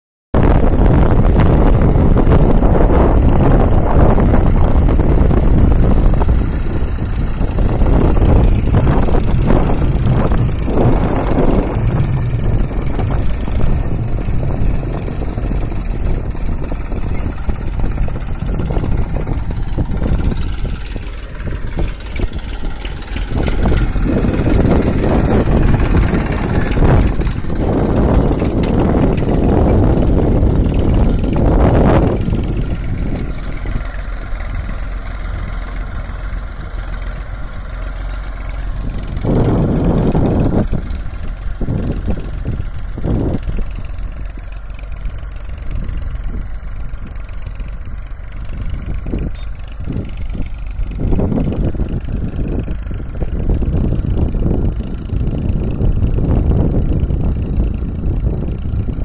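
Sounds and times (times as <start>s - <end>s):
tractor diesel engine running: 0.4s - 59.0s.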